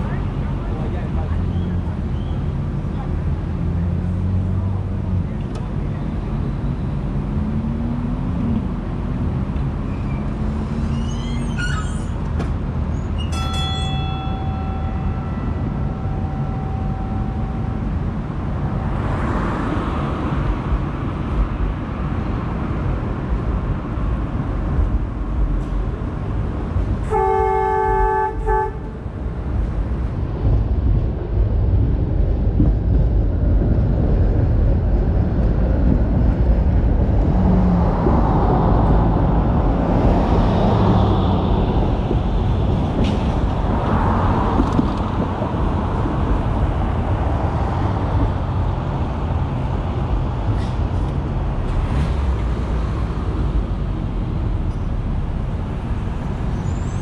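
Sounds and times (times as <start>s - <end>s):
trolley rumbling on track: 0.0s - 57.0s
vehicle horn blast: 27.0s - 28.9s.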